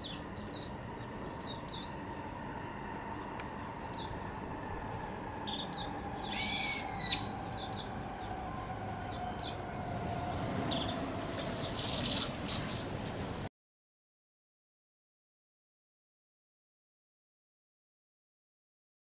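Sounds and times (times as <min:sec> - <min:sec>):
faint distant bird calls: 0:00.0 - 0:09.9, 0:10.6 - 0:13.3
bird calling in bursts: 0:05.4 - 0:08.0, 0:10.7 - 0:13.0.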